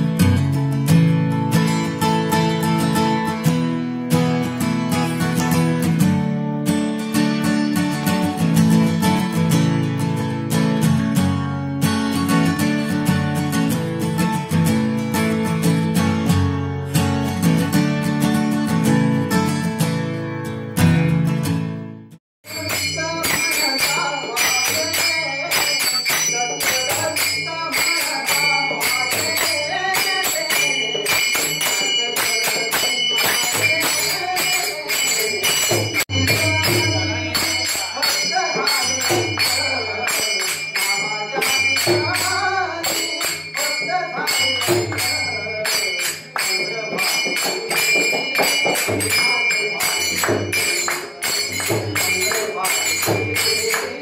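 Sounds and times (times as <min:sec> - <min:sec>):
jingling hand percussion: 0:00.0 - 0:20.1, 0:22.4 - 0:54.0
people singing devotional song: 0:22.5 - 0:54.0.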